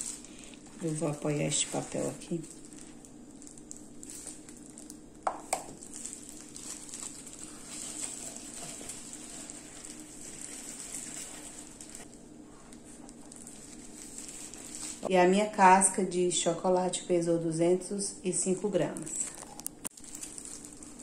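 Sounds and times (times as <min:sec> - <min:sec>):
paper towels rustling: 0:00.0 - 0:05.0, 0:05.8 - 0:15.1, 0:19.9 - 0:21.0
faint steady hum: 0:00.0 - 0:21.0.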